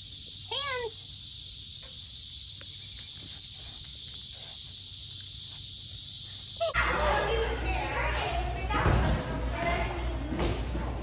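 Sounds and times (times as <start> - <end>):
high hiss of outdoor background: 0.0 - 8.4
dog sniffing: 2.8 - 6.8.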